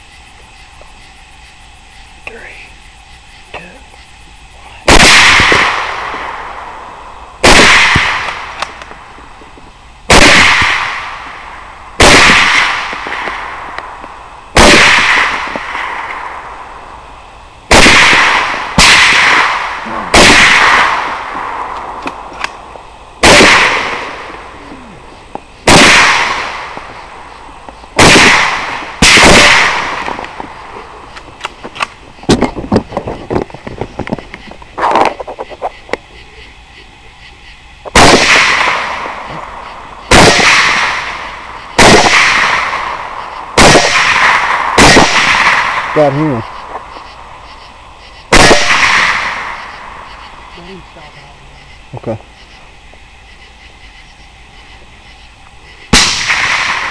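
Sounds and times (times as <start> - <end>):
rifle shots with echo: 4.8 - 8.9, 10.1 - 16.8, 17.7 - 24.6, 25.6 - 31.0, 37.9 - 46.9, 48.3 - 50.5, 55.9 - 56.9.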